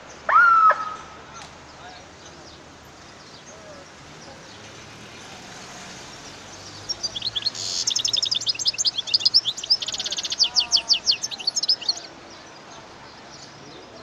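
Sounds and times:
bird singing high twittering trills: 6.2 - 12.6.

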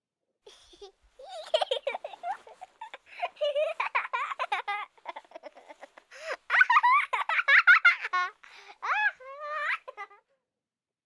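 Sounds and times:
baby doll babbling and giggling: 0.5 - 10.3.

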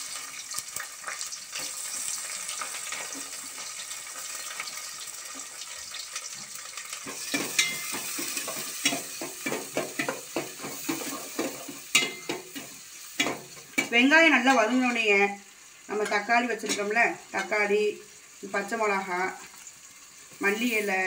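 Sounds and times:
onions sizzling in hot oil: 0.0 - 21.0
spoon scraping metal pot: 7.0 - 14.0.

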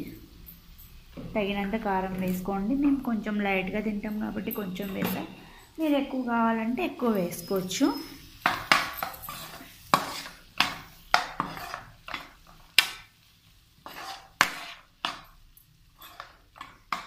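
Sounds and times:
spoon scraping a frying pan: 4.1 - 5.6, 7.1 - 13.1, 13.8 - 17.0.

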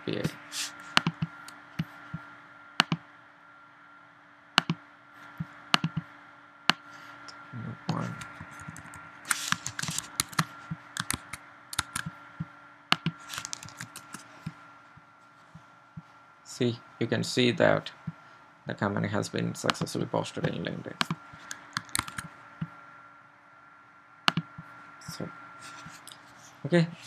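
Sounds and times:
faint electrical hum: 0.0 - 27.0
computer mouse clicks: 0.9 - 1.6, 2.8 - 3.0, 4.6 - 4.8, 5.8 - 6.0, 8.2 - 12.1, 12.9 - 14.6, 19.6 - 22.7, 24.3 - 24.5
keyboard keystrokes: 8.6 - 12.1, 13.0 - 14.2, 21.0 - 22.3.

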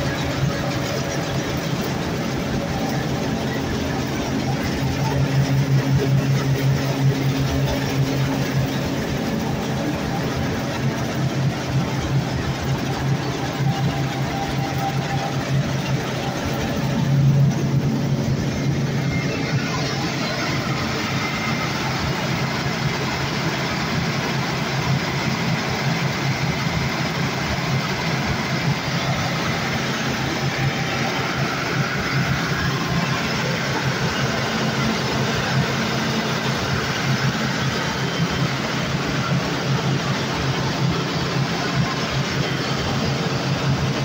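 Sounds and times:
engine humming: 0.0 - 44.0.

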